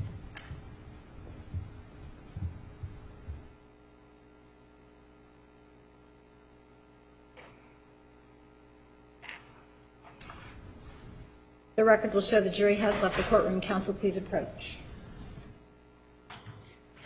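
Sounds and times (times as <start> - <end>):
dull low thumps: 0.0 - 3.6
electrical mains hum: 0.0 - 17.0.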